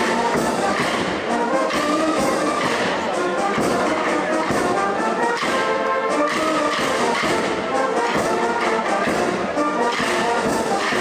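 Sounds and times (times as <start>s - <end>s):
brass band playing a melody: 0.0s - 11.0s.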